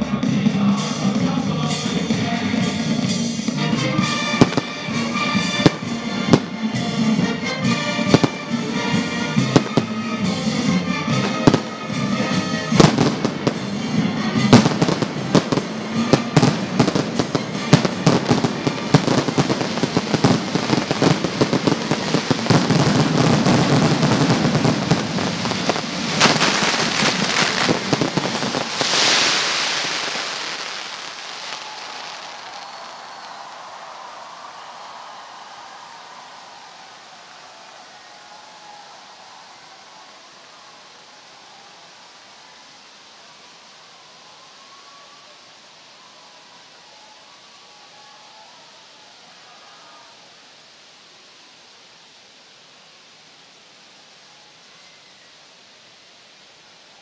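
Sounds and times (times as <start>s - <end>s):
fireworks crackling barrage: 0.1s - 38.8s
spark fountains hissing: 11.2s - 33.6s
firework shells bursting with bangs: 14.4s - 31.7s.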